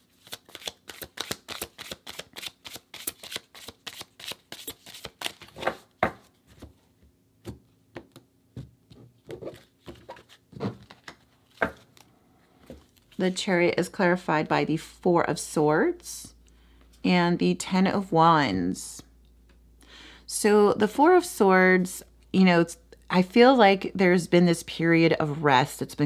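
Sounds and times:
cards being shuffled: 0.1 - 5.8, 8.9 - 12.1.

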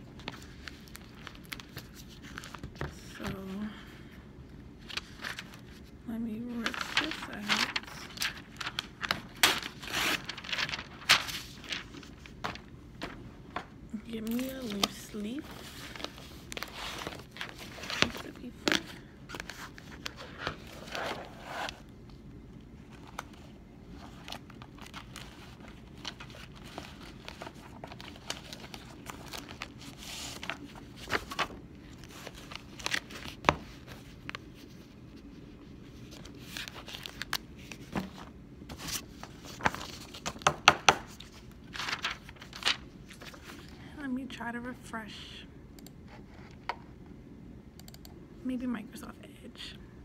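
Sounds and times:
paper rustling: 0.2 - 3.0, 4.8 - 21.8, 22.9 - 43.7
sharp paper crackles: 6.6 - 12.7, 23.9 - 34.8, 35.9 - 43.7.

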